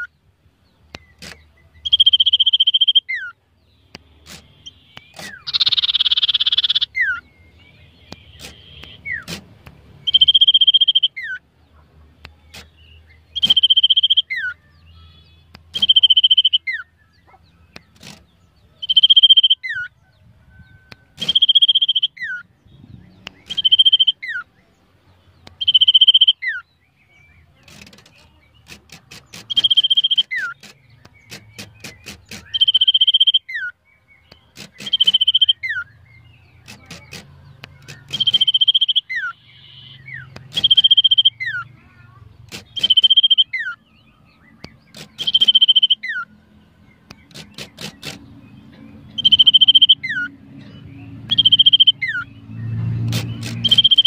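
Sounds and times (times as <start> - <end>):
sharp bird ticks: 0.8 - 19.8, 20.9 - 22.4, 23.0 - 24.3, 25.2 - 26.6, 27.5 - 43.8, 44.4 - 54.0
bird whistling calls: 1.0 - 3.3, 4.6 - 7.3, 10.0 - 11.4, 13.3 - 17.9, 20.6 - 22.5, 23.2 - 24.5, 25.5 - 26.6, 29.2 - 33.7, 34.3 - 36.0, 36.6 - 41.7, 42.6 - 43.8, 44.4 - 46.3, 49.1 - 50.3, 51.3 - 54.0.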